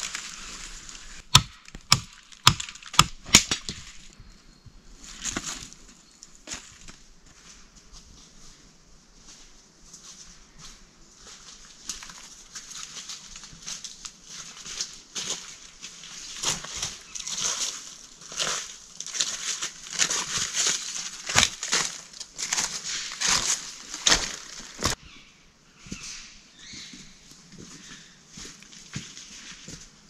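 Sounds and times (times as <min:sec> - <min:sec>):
footsteps crunching through dry leaves: 0:00.0 - 0:01.2, 0:05.0 - 0:25.0, 0:25.8 - 0:30.0
twigs cracking: 0:00.0 - 0:04.1, 0:16.1 - 0:25.0.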